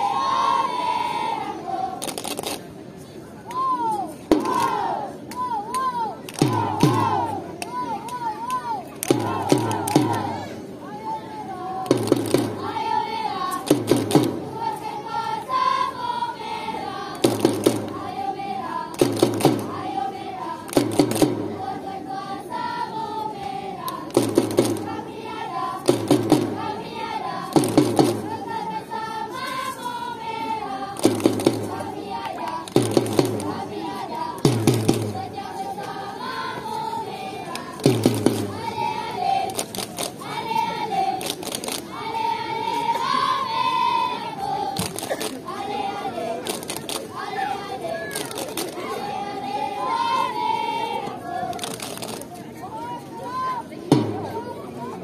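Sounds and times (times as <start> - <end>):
group of voices singing: 0.0 - 2.3, 4.3 - 52.3
sharp knocks or claps: 4.3 - 4.7, 9.0 - 10.2, 18.9 - 19.7, 20.7 - 21.4, 24.1 - 24.9, 31.0 - 31.8, 32.6 - 33.6, 37.8 - 38.6
sharp percussive hits: 31.0 - 31.8, 32.7 - 33.6, 34.5 - 35.4, 37.8 - 38.7.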